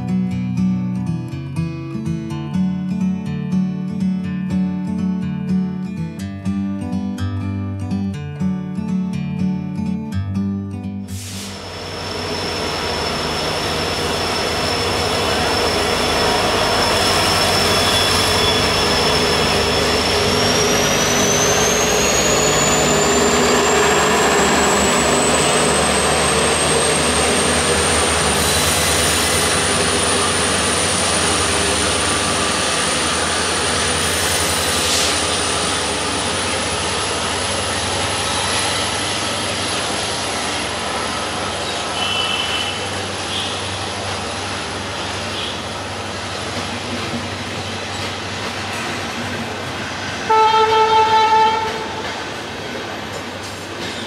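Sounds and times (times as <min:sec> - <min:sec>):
high whine: 0:11.1 - 0:46.1
diesel locomotive passing: 0:11.1 - 0:54.0
train wheel and rail noise: 0:11.1 - 0:54.0.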